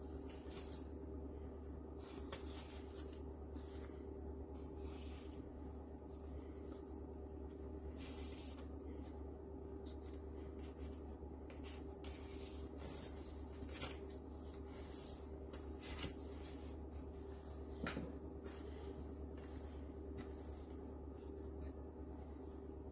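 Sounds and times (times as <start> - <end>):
steady low hum: 0.0 - 22.9
paper rustling and sliding: 1.9 - 5.5, 9.8 - 18.0.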